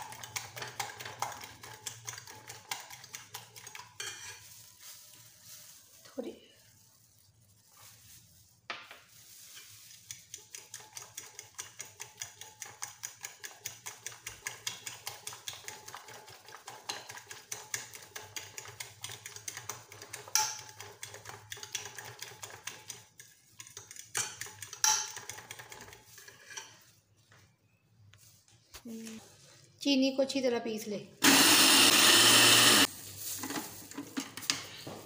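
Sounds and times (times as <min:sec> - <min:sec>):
metal spoon beating eggs in glass dish: 0:00.0 - 0:04.5, 0:09.5 - 0:26.9.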